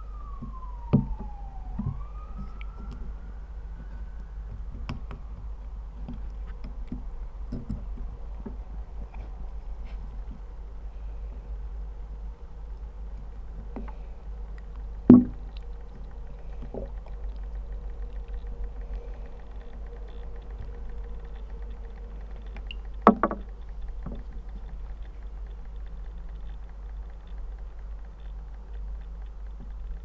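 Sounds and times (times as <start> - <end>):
faint clicks and creaks: 0.0 - 30.0
steady low hum: 0.0 - 30.0
sharp knocks: 15.1 - 15.4, 23.0 - 23.5.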